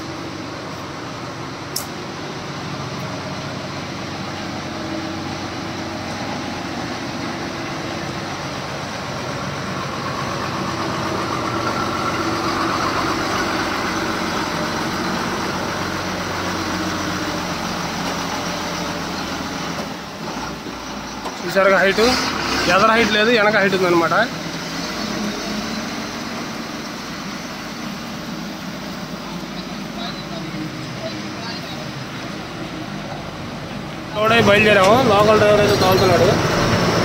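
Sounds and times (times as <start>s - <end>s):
lorry diesel engine running: 0.0s - 37.0s
road noise: 0.0s - 37.0s
sharp click: 1.7s - 2.0s.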